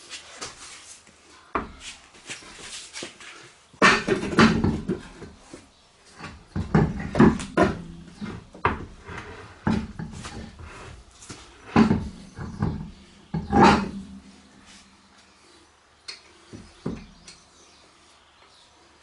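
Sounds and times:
wheel knocking and scraping on hub: 6.1 - 14.4.

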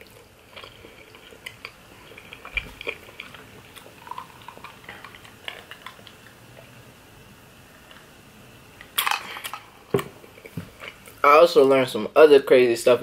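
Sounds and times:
wet chewing mouth sounds: 0.0 - 6.8, 9.4 - 11.2.

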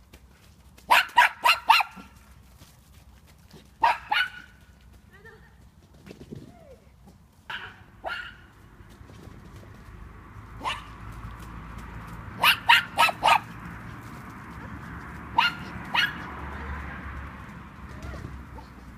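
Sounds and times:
dog barking: 0.9 - 2.1, 3.8 - 4.5, 7.5 - 8.5, 10.6 - 11.0, 12.4 - 13.6, 15.3 - 16.7.

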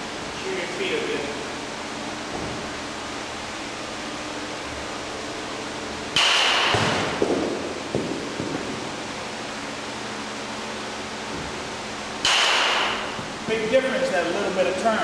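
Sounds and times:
steady hiss: 0.0 - 15.0
metal bat hitting baseball: 6.2 - 8.6, 12.2 - 13.2.

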